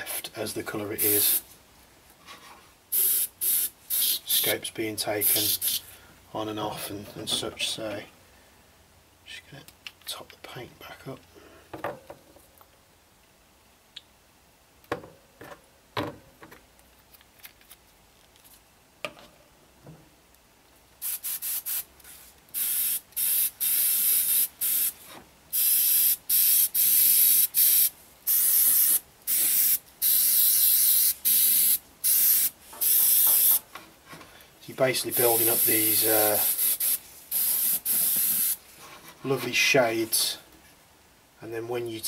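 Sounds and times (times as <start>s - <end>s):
airbrush spraying paint: 1.0s - 1.5s, 2.9s - 4.6s, 5.2s - 5.8s, 21.0s - 33.6s, 35.1s - 38.6s.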